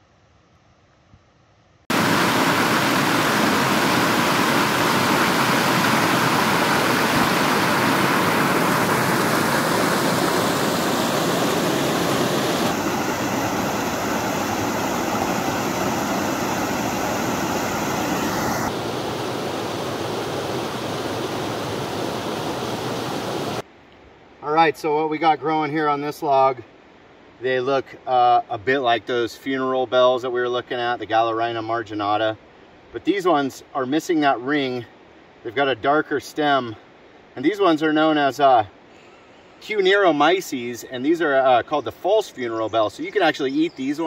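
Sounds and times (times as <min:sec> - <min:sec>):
waterfall rushing: 0:01.9 - 0:23.6.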